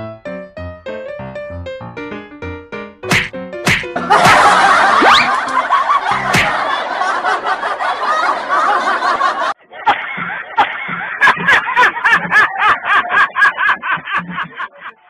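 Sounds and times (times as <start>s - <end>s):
dense laughter: 4.0s - 15.0s.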